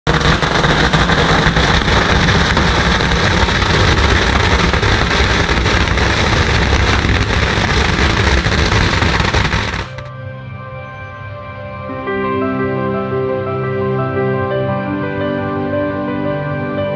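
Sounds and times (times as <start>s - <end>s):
firecrackers crackling: 0.1s - 10.1s
soft music: 10.0s - 16.9s.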